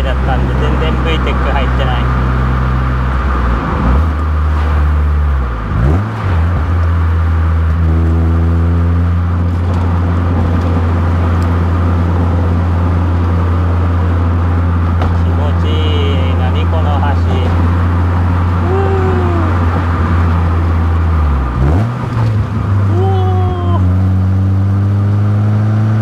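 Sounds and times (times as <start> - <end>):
car engine pulling at low revs: 0.0 - 26.0
tyre and road noise: 0.0 - 26.0.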